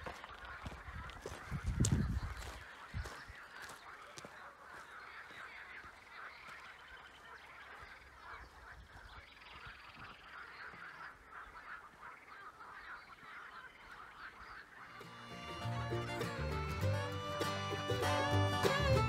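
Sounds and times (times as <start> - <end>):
geese honking: 0.0 - 19.0.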